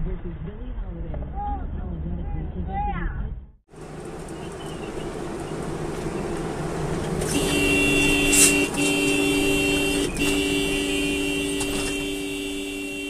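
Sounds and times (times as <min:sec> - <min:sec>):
vehicle road noise: 0:00.0 - 0:13.0
two-tone vehicle horn blasts: 0:07.2 - 0:13.0.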